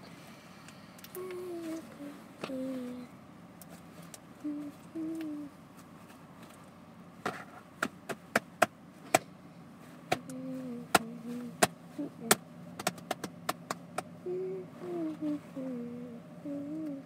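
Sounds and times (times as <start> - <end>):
person humming a tune: 1.1 - 3.1, 4.4 - 5.6, 10.2 - 12.4, 14.2 - 17.0.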